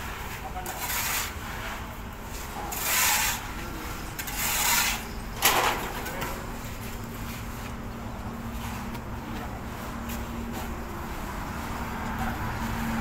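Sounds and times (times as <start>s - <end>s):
rasping scrapes: 0.6s - 1.4s, 2.7s - 3.5s, 4.2s - 5.1s.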